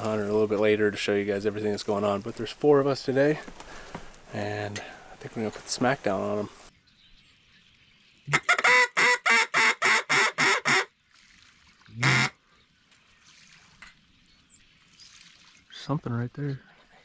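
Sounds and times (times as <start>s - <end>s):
duck call quacks: 8.3s - 10.9s, 12.0s - 12.4s.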